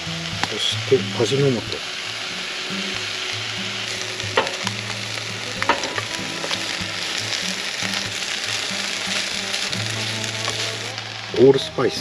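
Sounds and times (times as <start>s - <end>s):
vegetables sizzling in pan: 0.0s - 12.0s
utensil knocking on pan: 5.6s - 6.1s.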